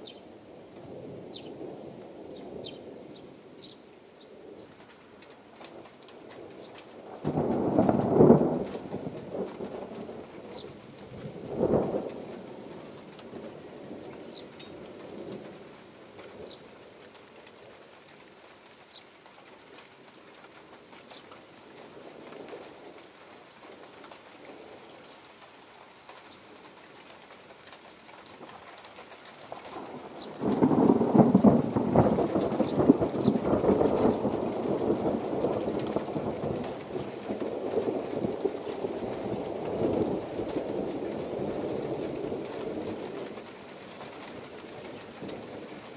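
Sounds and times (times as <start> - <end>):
steady rain: 0.0 - 45.9
thunder rumbling: 5.8 - 15.7, 29.7 - 45.9.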